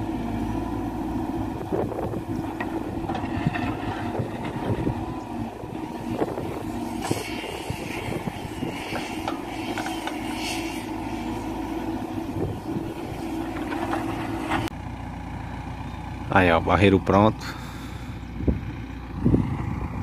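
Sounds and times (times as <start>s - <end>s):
diesel engine running under load: 0.0s - 20.0s
hissing noise: 6.8s - 11.1s.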